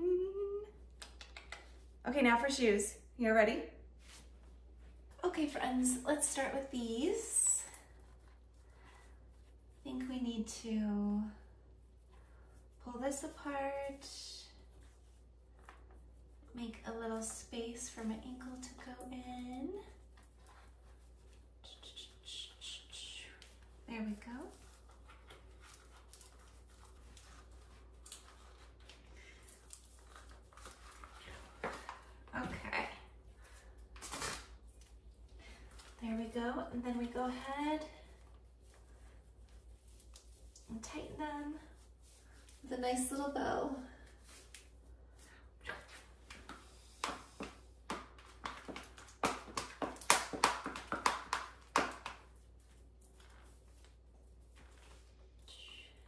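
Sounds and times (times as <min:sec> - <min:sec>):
small clicks and rustles: 0:23.2 - 0:32.9, 0:44.0 - 0:56.0.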